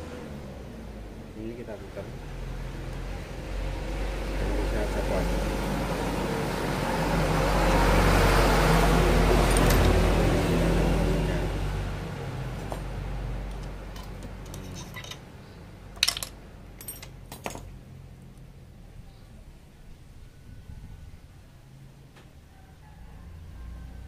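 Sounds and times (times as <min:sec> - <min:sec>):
vehicle engine running: 0:00.0 - 0:19.7
metal gears clinking: 0:09.4 - 0:10.0, 0:13.6 - 0:15.3, 0:16.0 - 0:17.7.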